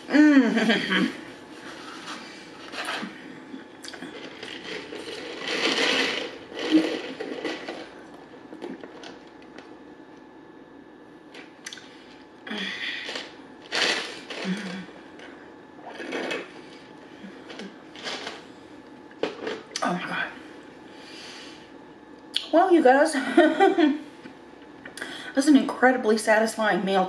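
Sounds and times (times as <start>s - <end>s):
ice rattling in plastic cup: 4.1s - 8.0s, 13.0s - 14.5s, 17.5s - 18.4s.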